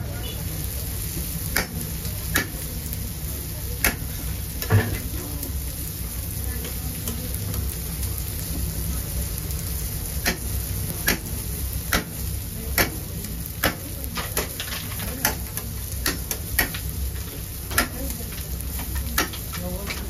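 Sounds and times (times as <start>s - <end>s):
grill hiss and rumble: 0.0s - 20.0s
metal blade clicking on grill grate: 17.7s - 18.0s.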